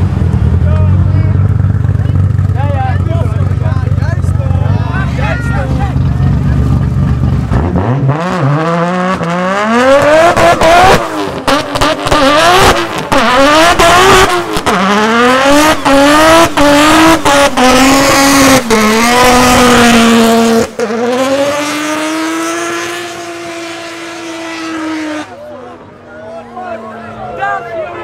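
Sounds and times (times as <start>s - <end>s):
car engine revving hard: 5.6s - 25.4s.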